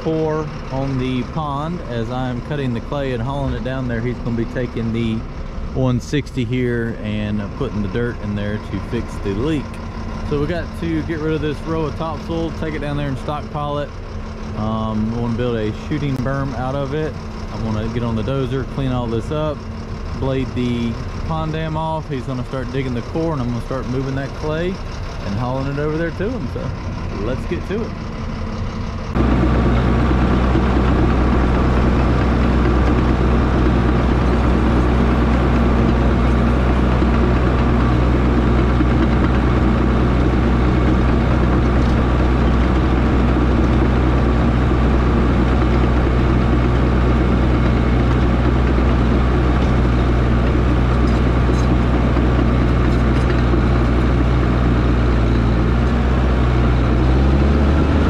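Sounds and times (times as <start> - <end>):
diesel engine droning: 0.0 - 58.0.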